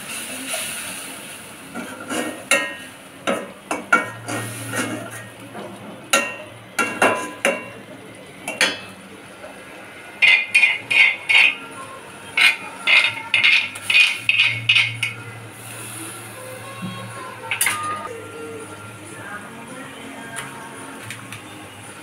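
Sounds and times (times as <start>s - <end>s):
utensils clinking on steel pot: 1.8s - 5.4s, 6.1s - 7.8s, 8.4s - 9.0s, 10.2s - 11.6s, 12.4s - 15.2s, 17.4s - 18.1s
spoon scraping perforated lid: 10.2s - 11.6s, 12.4s - 15.2s.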